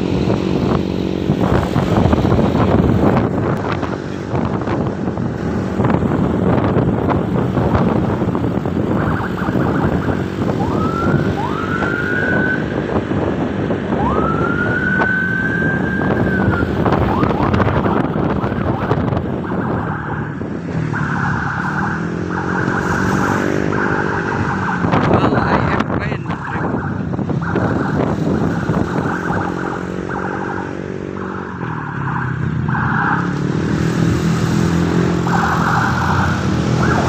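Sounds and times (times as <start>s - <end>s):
wind noise: 0.0s - 37.0s
siren-like whoop: 9.0s - 12.8s, 13.9s - 17.6s.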